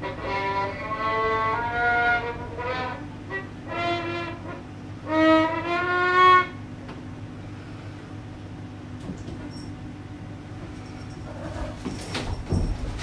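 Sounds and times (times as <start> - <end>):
violin bowed notes: 0.0 - 6.6.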